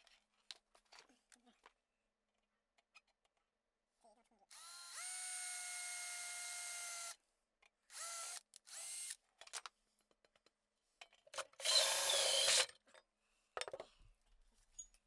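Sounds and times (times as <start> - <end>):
cordless drill motor whine: 4.5 - 7.2, 7.9 - 9.2, 11.6 - 12.6.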